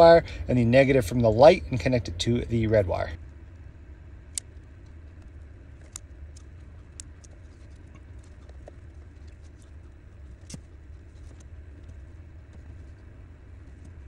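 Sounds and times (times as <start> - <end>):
steady low hum: 0.0 - 14.0
electrical wire rustling: 4.3 - 14.0.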